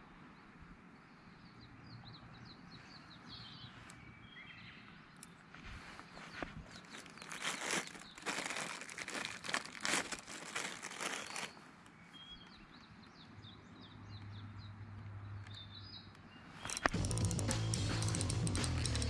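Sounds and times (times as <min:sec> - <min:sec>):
birds chirping: 0:01.0 - 0:19.0
plastic wrapper crinkling: 0:06.7 - 0:11.6.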